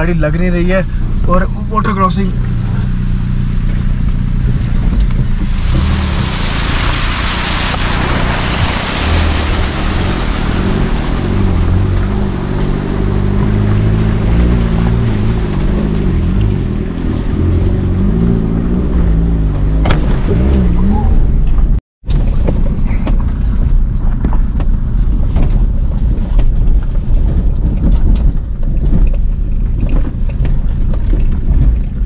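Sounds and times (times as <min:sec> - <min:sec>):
car engine running: 0:00.0 - 0:32.0
water splashing: 0:02.4 - 0:22.4.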